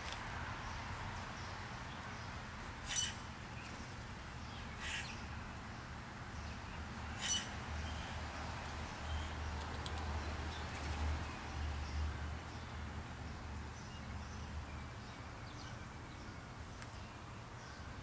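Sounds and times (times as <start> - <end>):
harsh bird calls: 2.8 - 3.3, 4.5 - 5.3, 7.0 - 8.2.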